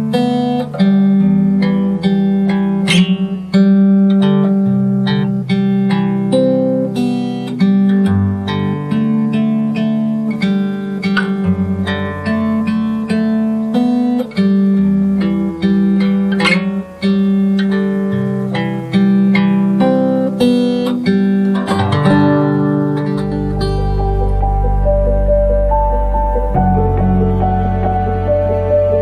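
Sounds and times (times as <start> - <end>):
acoustic guitar playing: 0.0 - 29.0
deep sustained bass note: 23.0 - 29.0.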